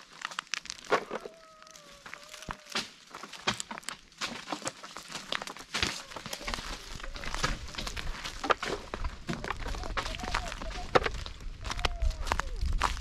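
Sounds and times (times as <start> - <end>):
dry leaves and soil crunching: 0.0 - 13.0.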